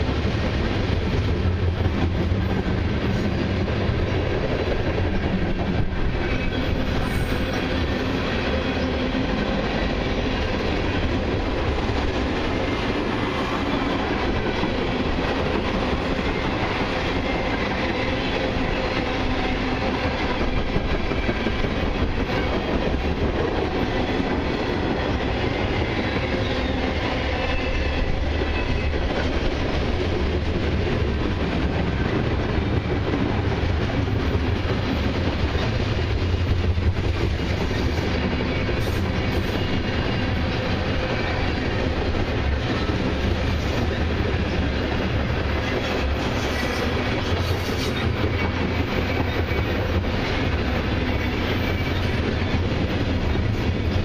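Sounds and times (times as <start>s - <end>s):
train wheels rumbling on rails: 0.0s - 54.0s.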